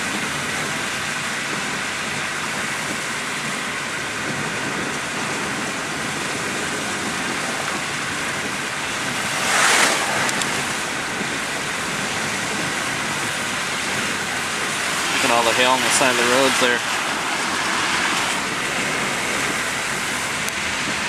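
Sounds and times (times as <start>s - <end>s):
tyres hissing on wet road: 0.0s - 21.0s
passing car whoosh: 7.4s - 20.8s.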